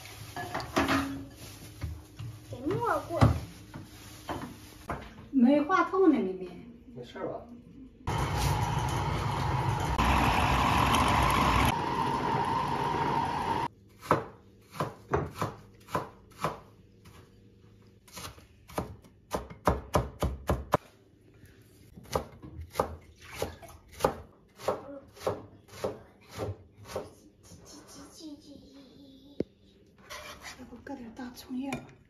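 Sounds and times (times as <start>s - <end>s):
electric food chopper running: 8.1s - 13.7s
knife chopping on plastic board: 14.0s - 16.7s.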